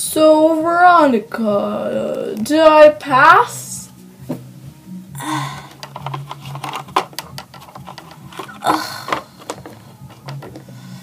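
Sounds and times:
plastic toys clicking on wood floor: 5.7 - 10.7
rustling scrape: 6.0 - 10.7.

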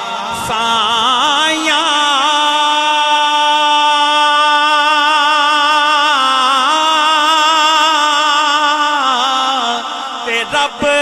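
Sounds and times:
man singing into a microphone: 0.0 - 11.0.

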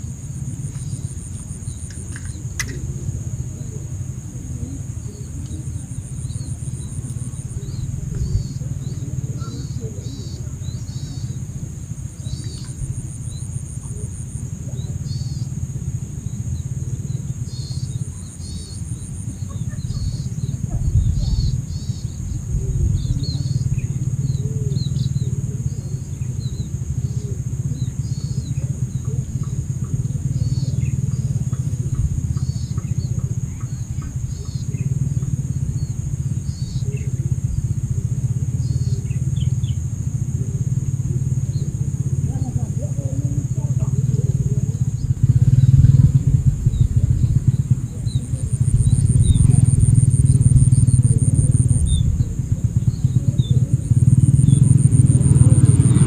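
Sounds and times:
high insect hum: 0.0 - 56.0
low rumble: 44.4 - 56.0.

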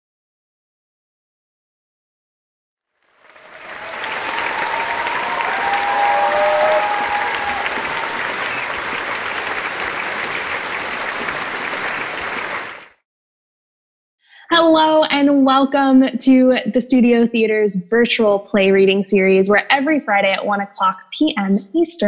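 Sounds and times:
audience applause: 3.0 - 13.0
people whooping: 3.2 - 12.8.

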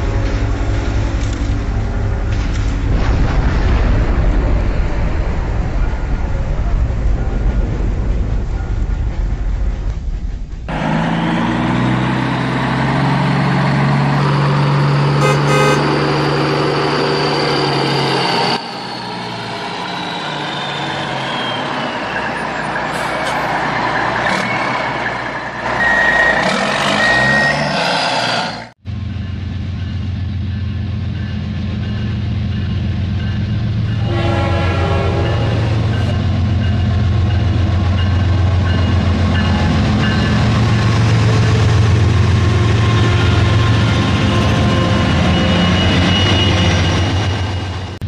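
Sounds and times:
train rumble: 0.0 - 27.0, 28.7 - 48.0
horn blast: 15.2 - 16.1
engine with falling whistle: 15.2 - 22.4, 25.6 - 28.6.

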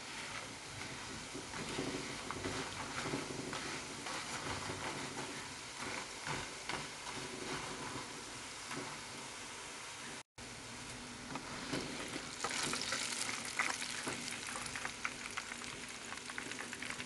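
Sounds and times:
spatula stirring in pan: 0.0 - 9.4, 11.3 - 17.0
dough sizzling in hot oil: 0.0 - 17.0.

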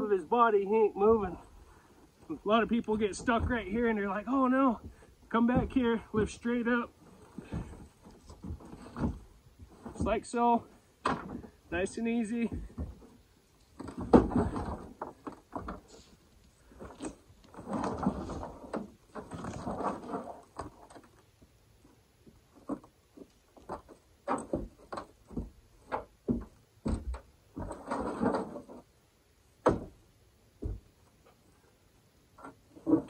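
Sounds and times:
scraping and shuffling: 0.0 - 29.0
knocks and thumps: 2.8 - 3.9, 4.7 - 10.3, 11.0 - 11.7, 12.4 - 13.2, 13.8 - 16.0, 22.2 - 28.9, 29.6 - 30.0, 30.6 - 31.1.

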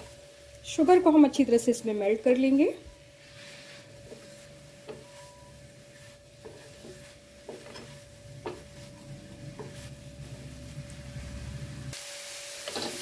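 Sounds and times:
faint sizzle: 0.0 - 13.0
spatula scraping a pan: 2.8 - 11.0, 12.6 - 13.0.

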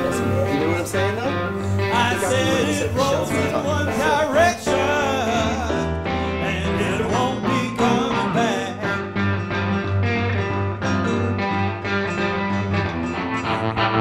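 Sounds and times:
man singing blues: 0.0 - 9.7
guitar: 0.0 - 14.0
keyboard: 0.0 - 14.0.

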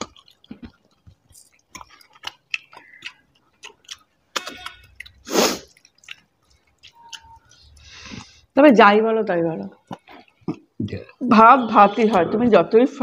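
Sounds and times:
lip smacks: 0.0 - 8.4
people chewing: 0.0 - 8.6, 9.6 - 12.6.

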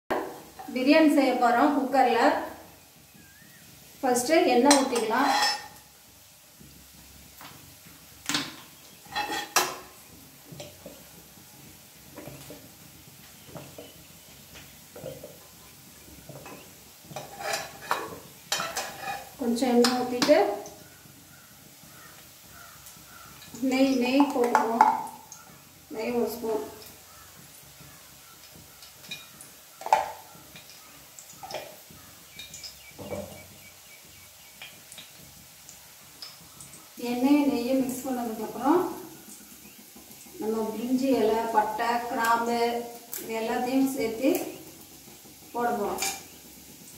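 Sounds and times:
steel spoons clinking on metal pot: 4.7 - 5.7, 17.2 - 20.0
steel ladle clanking on pot: 4.7 - 5.8, 8.3 - 10.9, 16.3 - 20.4, 28.5 - 30.7.

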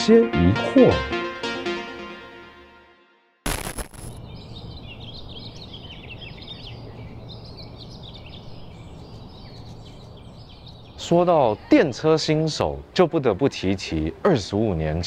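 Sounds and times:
short loud burst of noise: 3.4 - 4.2
small birds chirping: 4.0 - 15.0.

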